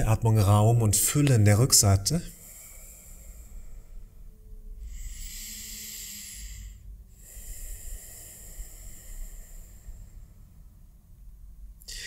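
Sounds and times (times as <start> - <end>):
person breathing deeply: 2.2 - 11.0, 11.8 - 12.0.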